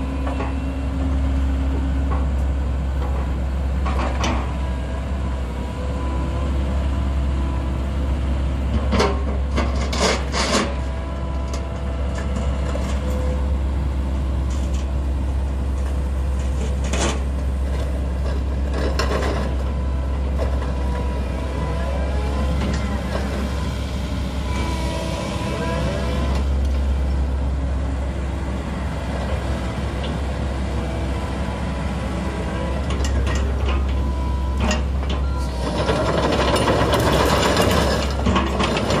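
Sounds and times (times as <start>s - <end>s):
excavator diesel engine running: 0.0s - 39.0s
hydraulic whine: 21.5s - 27.1s.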